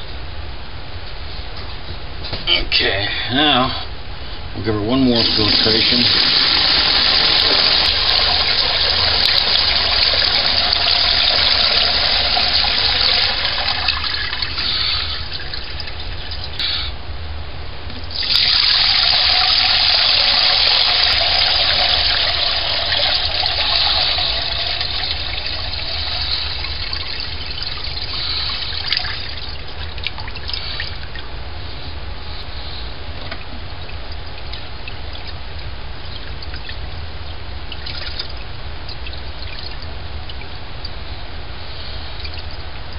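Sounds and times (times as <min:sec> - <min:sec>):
liquid mash pouring and splashing: 0:05.2 - 0:16.6, 0:18.1 - 0:31.3, 0:37.6 - 0:40.6.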